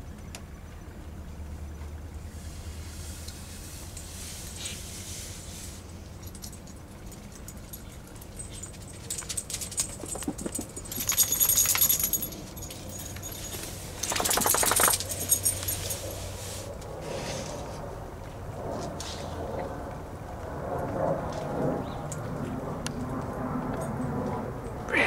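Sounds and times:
metal chain clinking: 6.1 - 16.4.

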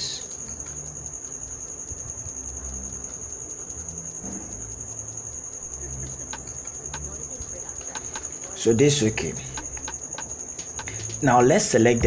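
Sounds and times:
low hum: 0.0 - 8.5
cricket trilling: 0.0 - 12.0.

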